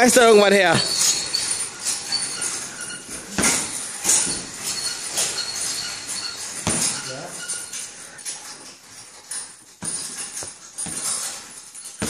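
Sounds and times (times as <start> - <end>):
thuds: 0.8 - 7.5.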